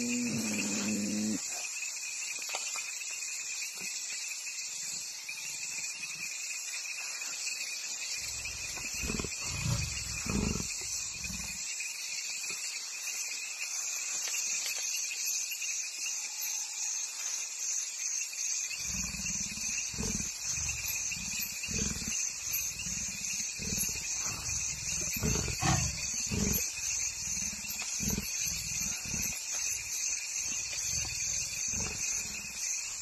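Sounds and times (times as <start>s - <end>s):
leopard growling: 0.0s - 1.6s, 8.2s - 11.6s, 18.8s - 33.0s
crickets chirping: 0.0s - 33.0s.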